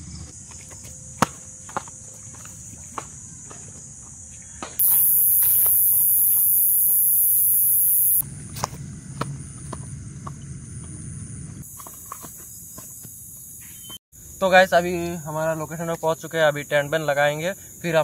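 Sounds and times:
loud high-pitched insect shrill: 4.8 - 8.2
night insects shrilling: 4.8 - 8.2.

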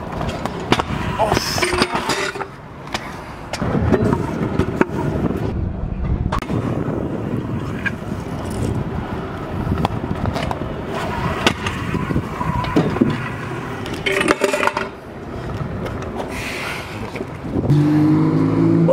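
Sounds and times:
scooter wheels rolling on pavement: 0.0 - 17.7
scooter deck clacking on ground: 0.1 - 5.0, 12.6 - 16.3.

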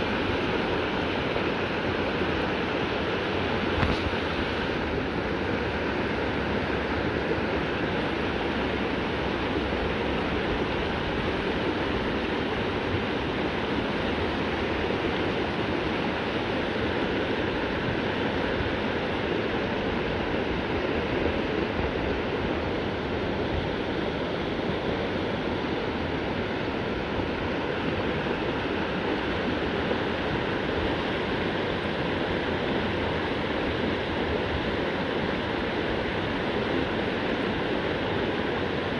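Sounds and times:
river flowing over rocks: 0.0 - 38.9.

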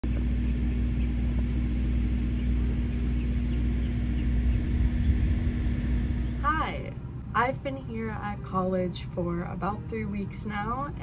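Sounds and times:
pulsing high hiss: 0.0 - 6.8
faint steady hum: 0.0 - 11.0
steady low rumble: 0.0 - 11.0.

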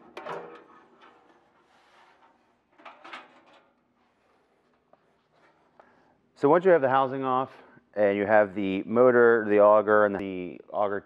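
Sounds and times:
faint metal scrape: 0.7 - 5.8.

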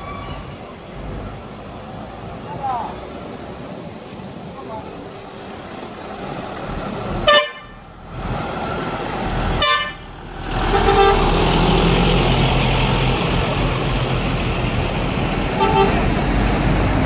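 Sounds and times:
diesel engine of bus: 0.0 - 17.0
bus horn blasts: 7.2 - 7.8, 9.6 - 10.1, 10.7 - 11.3, 15.6 - 16.1.

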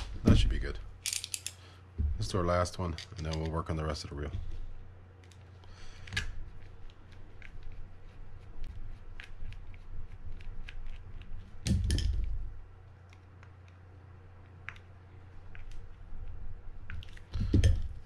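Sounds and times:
small metal parts clicking: 1.0 - 1.6.

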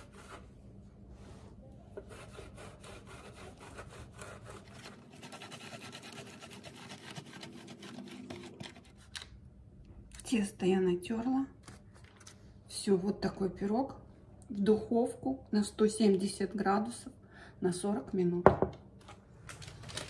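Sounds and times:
dough grated on metal grater: 2.0 - 9.0.

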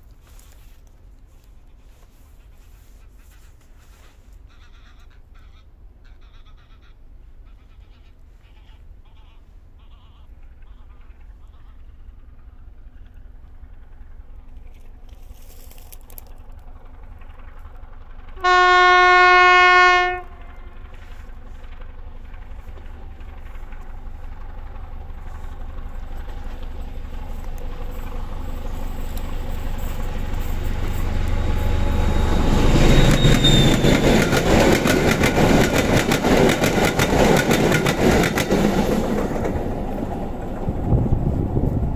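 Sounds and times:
wheels clattering over rails: 10.4 - 41.9
diesel engine passing: 10.9 - 41.9
locomotive horn blast: 18.4 - 21.2.

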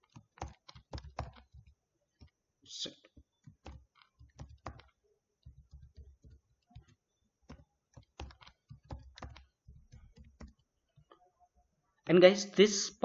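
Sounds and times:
computer keyboard typing: 0.0 - 2.4, 3.2 - 11.2.

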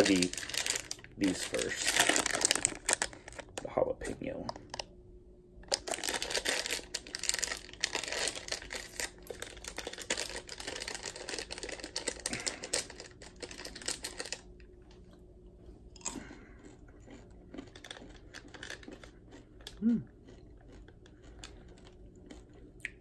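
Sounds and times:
candies shaken out: 0.0 - 3.5, 5.7 - 14.5
plastic wrapper crinkling: 0.0 - 3.7, 5.7 - 14.5.

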